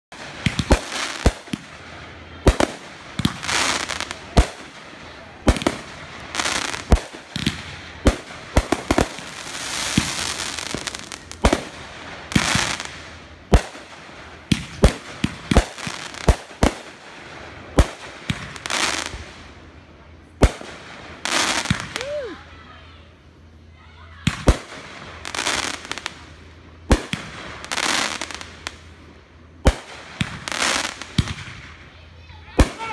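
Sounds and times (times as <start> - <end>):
fireworks bangs: 0.1 - 23.0, 24.1 - 32.9
crackling hiss of fireworks: 0.1 - 32.9.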